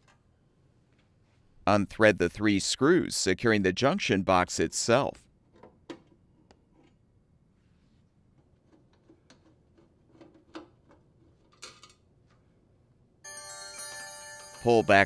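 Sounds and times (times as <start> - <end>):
electronic chime: 13.2 - 15.0.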